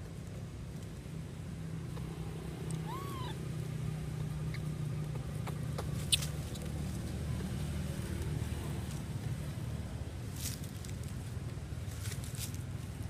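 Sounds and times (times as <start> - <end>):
baby monkey squeak: 2.8 - 3.4, 4.4 - 6.7.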